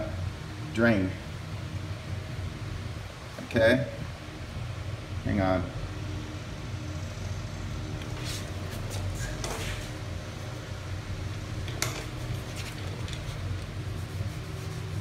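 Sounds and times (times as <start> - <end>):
steady low hum: 0.0 - 15.0
brushing scuffs: 8.0 - 10.1, 12.0 - 15.0.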